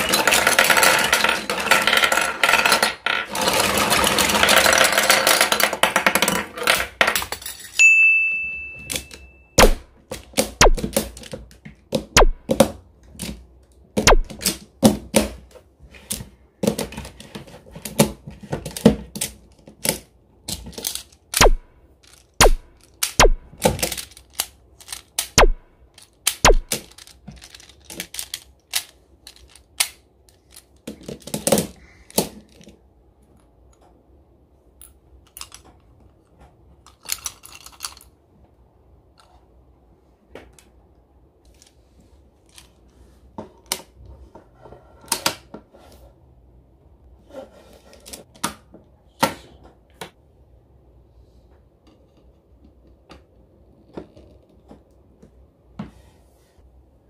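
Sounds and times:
plastic tiles clacking: 36.8s - 38.2s.

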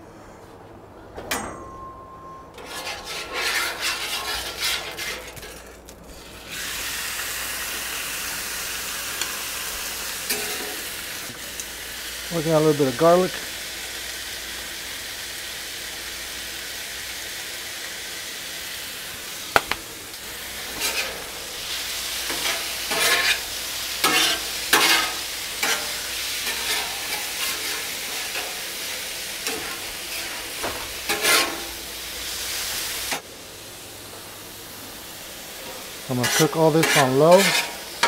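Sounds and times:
metal clink: 1.3s - 2.5s
metal spatula scraping griddle: 2.6s - 6.4s, 20.7s - 28.6s, 29.4s - 31.8s, 36.1s - 38.0s
food sizzling on a griddle: 3.1s - 38.0s.

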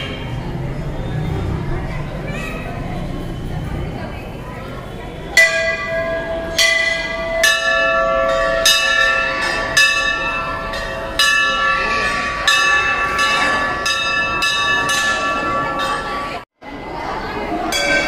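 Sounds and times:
brass bells ringing: 5.4s - 16.4s.

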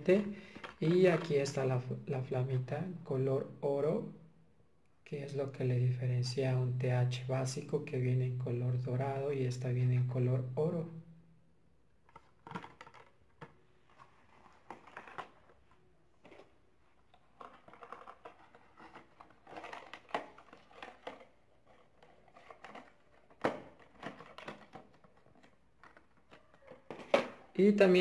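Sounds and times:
plastic packaging crinkling: 11.9s - 27.6s.

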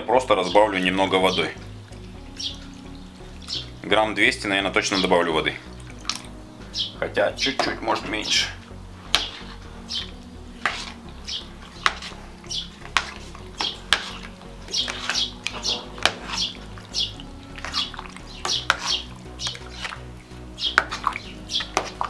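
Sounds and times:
metal ladle scraping steel pot: 7.5s - 22.0s.

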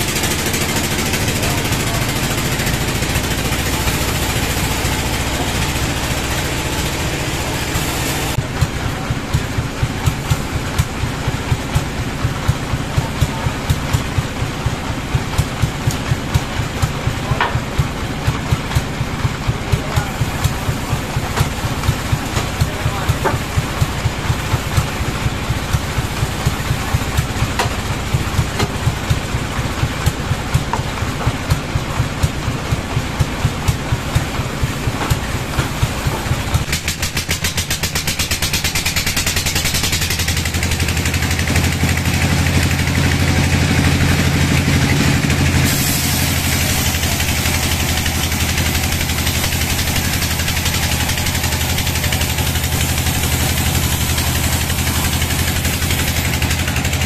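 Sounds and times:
steady machine hum: 0.0s - 13.5s, 38.1s - 57.0s
sawmill engine idling: 0.0s - 57.0s
hiss: 34.6s - 57.0s.

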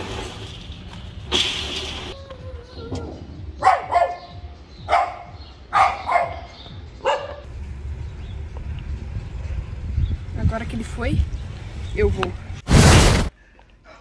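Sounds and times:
dog barking: 3.6s - 7.5s.

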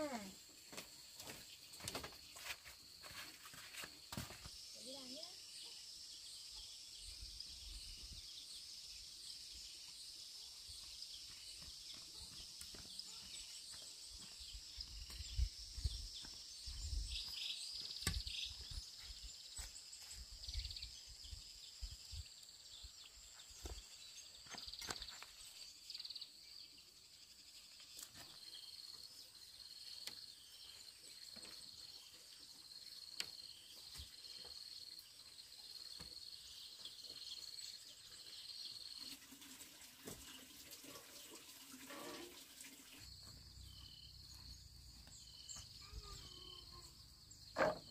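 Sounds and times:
footsteps: 0.7s - 4.6s.

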